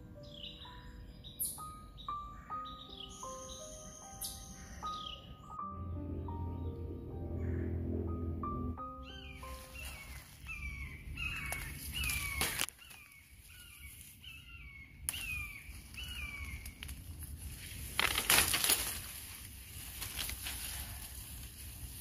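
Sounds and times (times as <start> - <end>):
bird calling: 0.0 - 5.6, 8.8 - 17.0
rustle of leaves and stems: 9.4 - 22.0.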